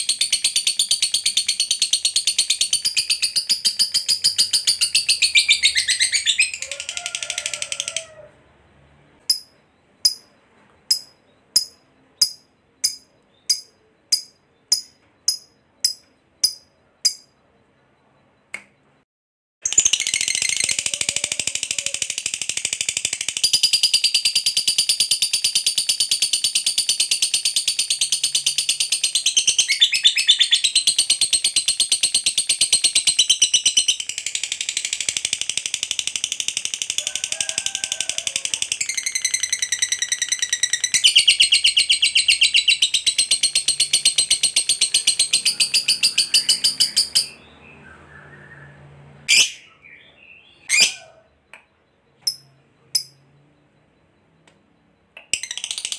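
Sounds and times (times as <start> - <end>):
bird chattering trill: 0.0 - 8.2, 19.7 - 37.6, 38.3 - 47.6, 49.3 - 51.4.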